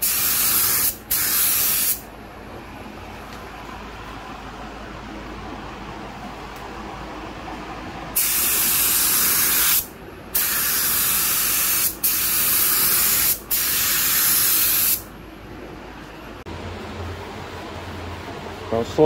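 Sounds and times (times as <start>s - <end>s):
paint spray gun hissing: 0.0s - 2.0s, 8.2s - 15.0s.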